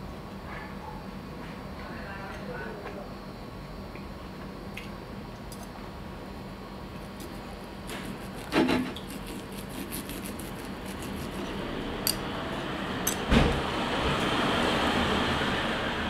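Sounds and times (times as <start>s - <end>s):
knife sawing through meat: 7.3s - 11.7s.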